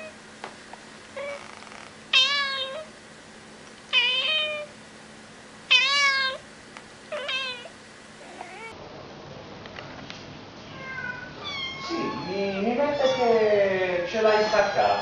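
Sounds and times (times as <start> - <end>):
cat meowing: 1.2 - 2.9, 3.9 - 4.7, 5.7 - 6.4, 7.1 - 8.8, 10.7 - 13.5, 14.2 - 15.0.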